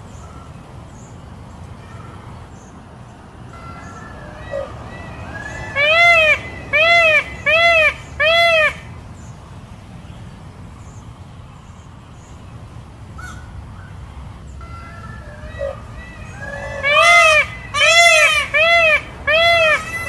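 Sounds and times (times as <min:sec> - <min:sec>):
peacock calls: 0:03.2 - 0:09.0, 0:13.2 - 0:20.0.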